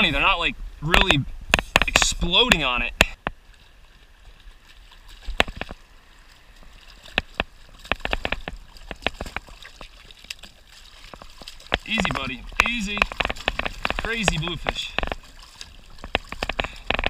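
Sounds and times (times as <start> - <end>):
surf washing: 0.0 - 17.0
fish slapping and splashing: 4.4 - 17.0.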